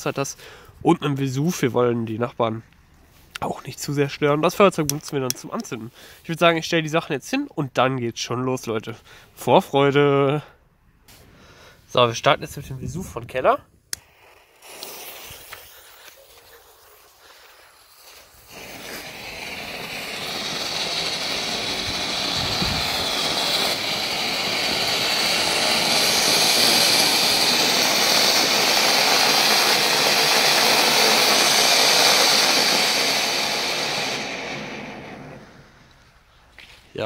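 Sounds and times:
fuse burning: 12.6s - 36.7s
firework spraying sparks with a hiss: 13.9s - 36.3s.

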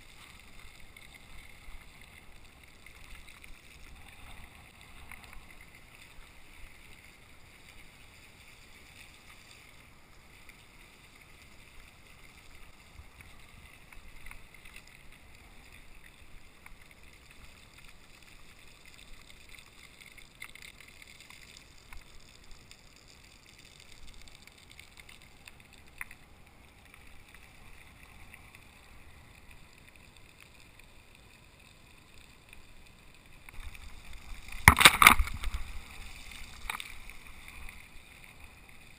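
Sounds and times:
bicycle rolling on wet pavement: 0.0s - 9.9s
light ticks: 0.1s - 35.7s.

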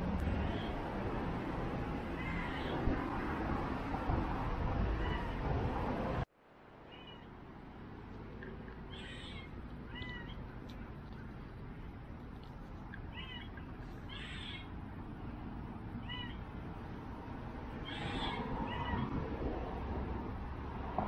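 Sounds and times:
short high animal calls: 13.1s - 14.7s, 17.8s - 19.1s.

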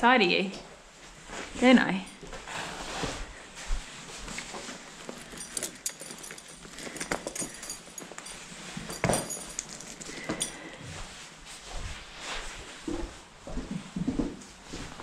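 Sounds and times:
shuffling on bedding: 0.9s - 6.8s, 7.5s - 13.6s
saddle buckles clinking: 4.2s - 11.1s.

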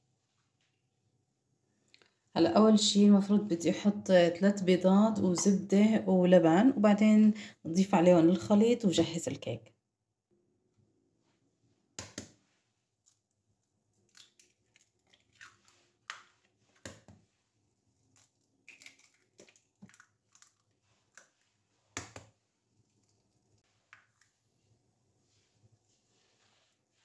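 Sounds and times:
eggshells cracking: 14.0s - 16.3s, 18.1s - 21.4s.

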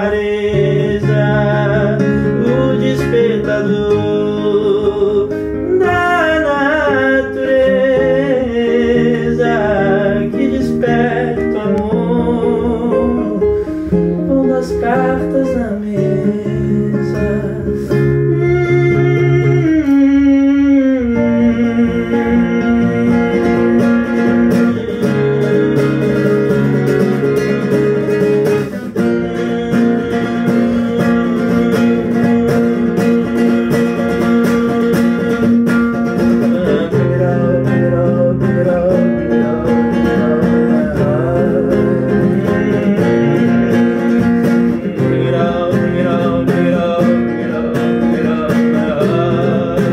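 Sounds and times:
acoustic guitar: 0.0s - 49.9s
man singing: 0.0s - 49.9s.

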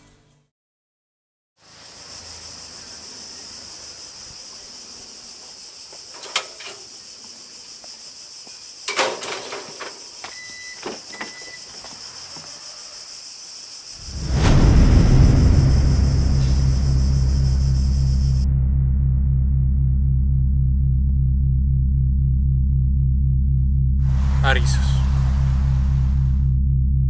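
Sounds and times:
cicadas droning: 1.6s - 14.3s, 15.0s - 18.4s, 24.0s - 26.4s
car engine rumble: 14.1s - 27.0s.

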